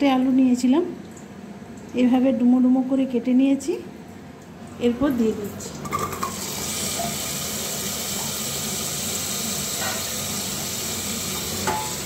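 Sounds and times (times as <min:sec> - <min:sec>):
potatoes sizzling in hot oil: 0:06.0 - 0:12.0.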